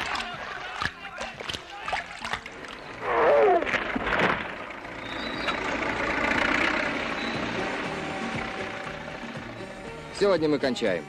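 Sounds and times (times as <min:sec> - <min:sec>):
tank engine rumbling: 0:00.0 - 0:11.0.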